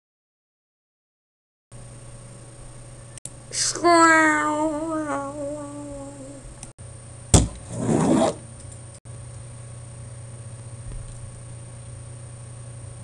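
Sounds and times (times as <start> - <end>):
person singing a long note: 3.6 - 6.4
hand rubbing on tabletop: 7.7 - 8.4.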